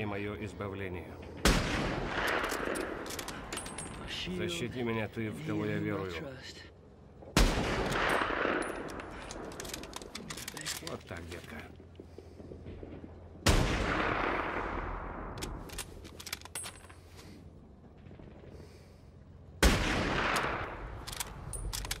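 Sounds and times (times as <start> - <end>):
loud gunshot blasts: 1.4 - 2.7, 7.4 - 8.7, 13.4 - 15.3, 19.6 - 20.8.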